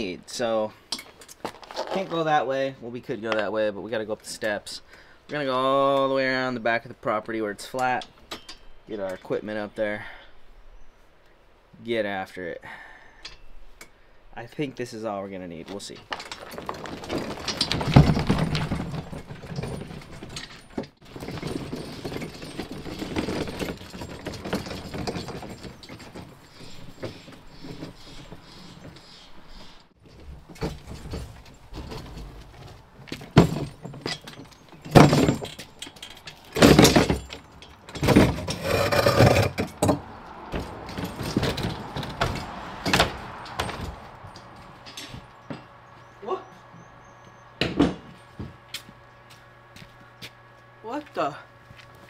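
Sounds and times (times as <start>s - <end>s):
tools clunking and knocking: 7.8s - 9.3s, 15.7s - 46.2s, 47.6s - 48.6s
wheeled cart rattling: 15.8s - 29.0s, 30.1s - 46.2s.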